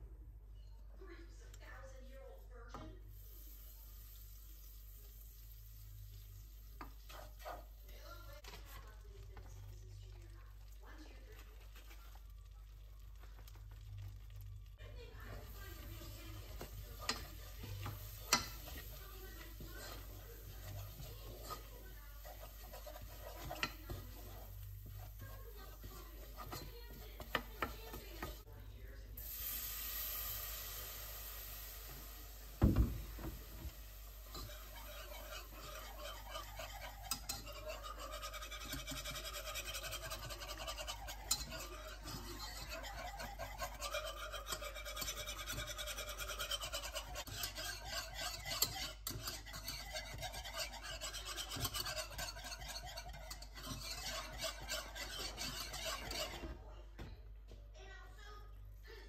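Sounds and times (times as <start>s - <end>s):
whisk scraping a saucepan: 2.7s - 28.5s, 30.4s - 56.6s
thump: 32.6s - 33.0s.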